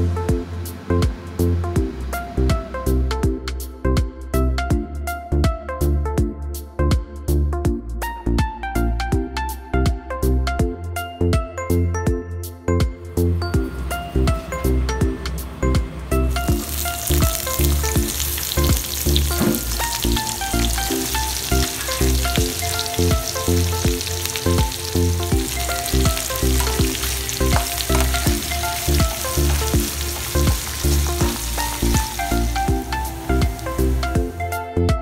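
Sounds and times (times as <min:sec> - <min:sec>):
background music with a beat: 0:00.0 - 0:35.0
food sizzling in hot oil: 0:16.3 - 0:34.4
stirring in a pan: 0:16.4 - 0:34.1.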